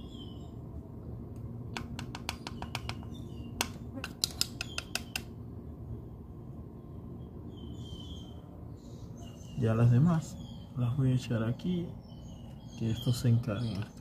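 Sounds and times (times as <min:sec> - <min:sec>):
faint high bird chirps: 0:00.0 - 0:00.6, 0:02.2 - 0:05.3, 0:06.8 - 0:14.0.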